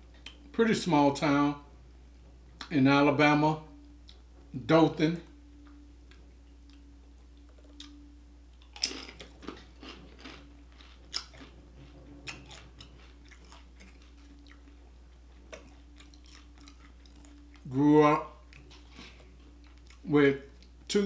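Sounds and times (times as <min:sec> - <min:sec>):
chip crunching: 0:08.6 - 0:17.7.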